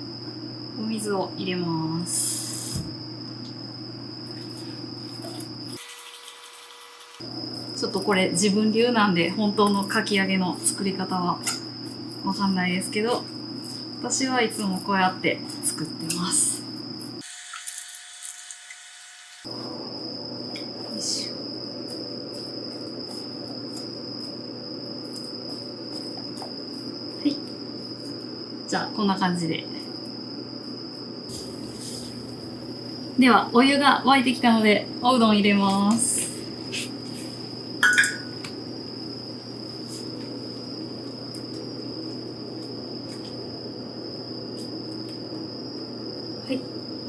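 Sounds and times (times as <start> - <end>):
water boiling in a pot: 5.7 - 8.5.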